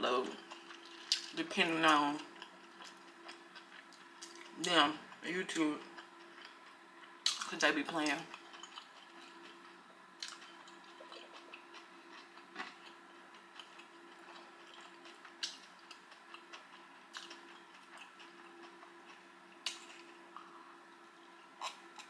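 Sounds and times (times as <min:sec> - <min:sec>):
faint steady hum: 0:00.0 - 0:22.0
person sipping and swallowing: 0:10.8 - 0:11.7.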